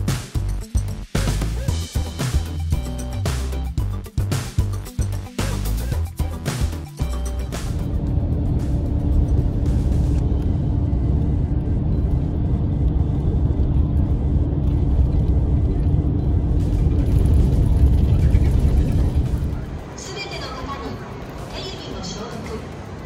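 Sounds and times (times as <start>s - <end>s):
road rumble: 0.0s - 23.0s
bus engine rumble: 5.7s - 23.0s.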